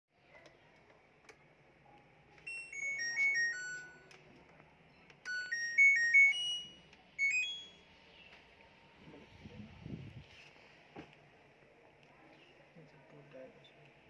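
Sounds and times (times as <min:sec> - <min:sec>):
electronic buzzer beeping tunes: 0:05.3 - 0:07.9.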